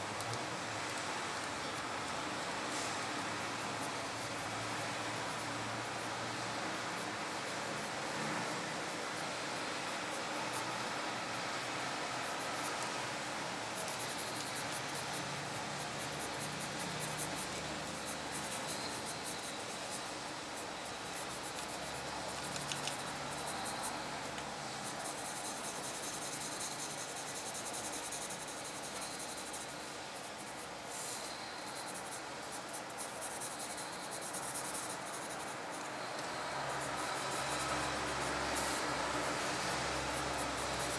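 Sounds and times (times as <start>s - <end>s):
pencil scratching on paper: 13.8s - 40.9s.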